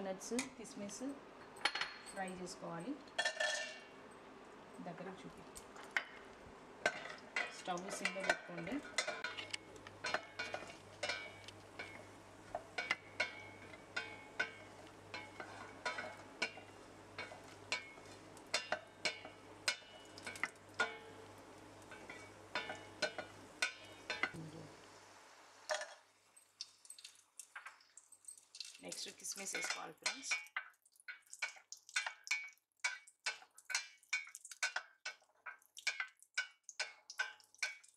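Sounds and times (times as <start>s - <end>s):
faint sizzle: 0.0s - 37.9s
spatula scraping metal pot: 12.8s - 19.8s.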